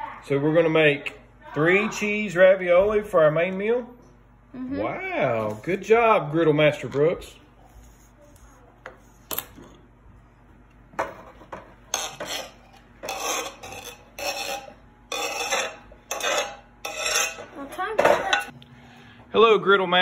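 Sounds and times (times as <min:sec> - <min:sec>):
cucumber scraping into bowl: 0:11.9 - 0:17.4.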